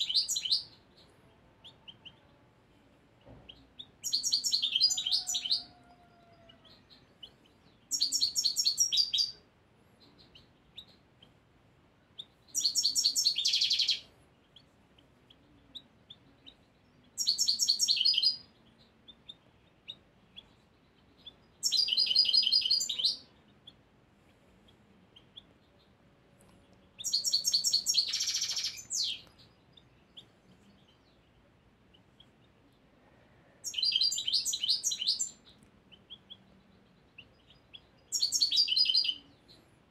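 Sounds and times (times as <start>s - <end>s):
bird twittering song: 0.0s - 9.4s, 10.0s - 11.4s, 12.1s - 39.9s.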